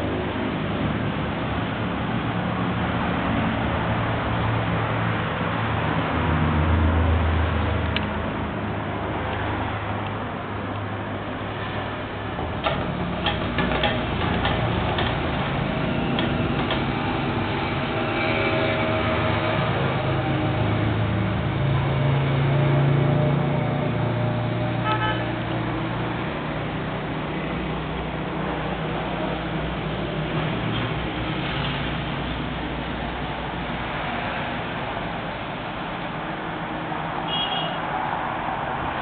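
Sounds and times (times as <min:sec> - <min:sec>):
traffic noise: 0:00.0 - 0:39.0
car horn toot: 0:24.8 - 0:25.3, 0:37.3 - 0:37.8.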